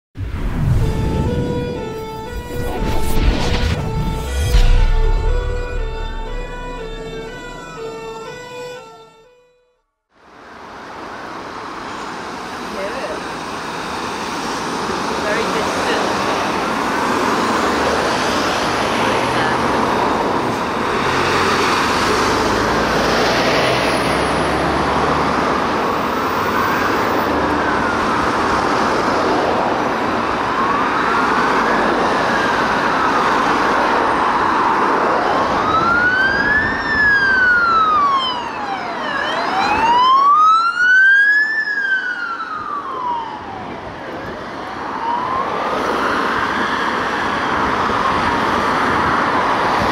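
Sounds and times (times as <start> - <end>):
heavy road traffic: 0.2 - 49.9
ambulance siren wailing: 0.6 - 9.7, 15.3 - 49.9.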